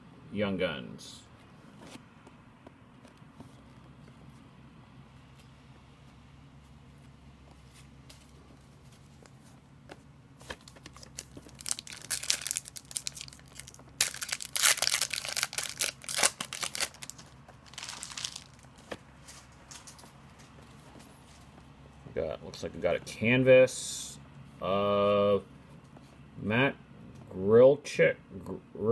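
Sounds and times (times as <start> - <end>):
faint low hum: 0.0 - 28.9
foil wrapper crinkling: 10.5 - 20.0.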